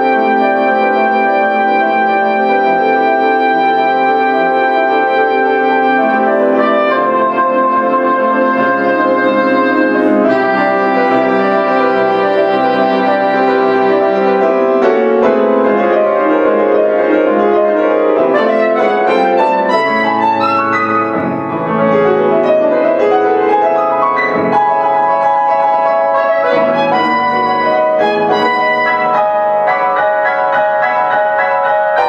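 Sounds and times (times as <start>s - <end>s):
soprano saxophone: 0.0s - 21.4s, 24.4s - 32.0s
grand piano: 0.0s - 32.0s.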